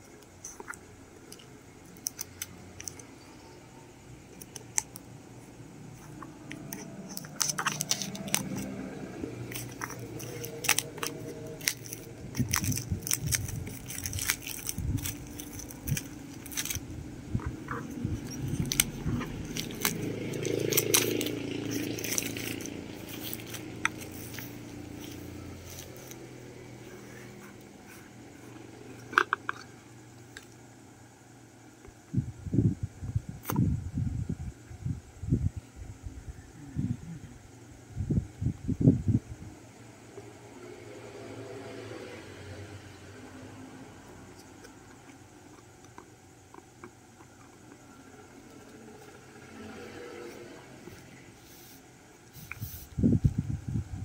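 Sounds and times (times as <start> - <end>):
plastic shrink wrap crinkling: 6.7 - 8.6, 9.5 - 16.8, 17.7 - 26.2.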